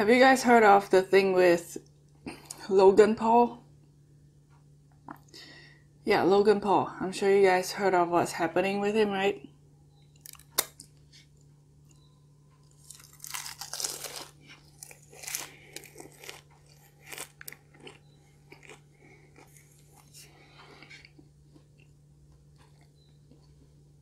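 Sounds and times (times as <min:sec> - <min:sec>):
crunching pastry: 0:10.0 - 0:24.0
person chewing: 0:10.1 - 0:24.0.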